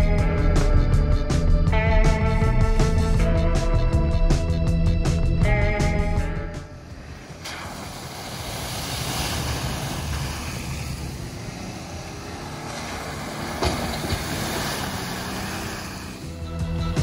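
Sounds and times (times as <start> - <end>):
vehicle engine rumble: 0.0 - 17.0
tyres through muddy puddle: 6.8 - 17.0.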